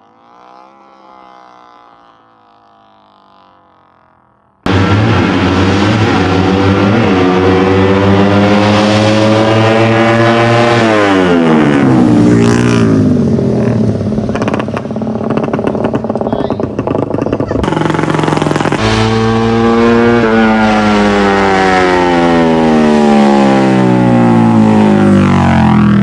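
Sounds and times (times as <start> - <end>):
motorcycles racing at full throttle: 0.0 - 26.0.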